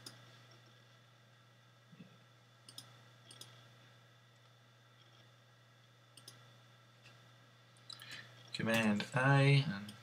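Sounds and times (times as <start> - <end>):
low steady hum: 0.0 - 10.0
computer clicks: 2.6 - 3.6, 6.2 - 6.4.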